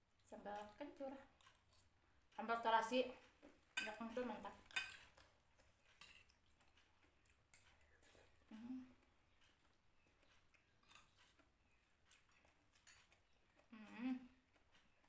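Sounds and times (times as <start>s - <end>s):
faint chewing: 0.1s - 15.0s
low hum of a voice: 8.5s - 9.0s, 13.7s - 14.4s.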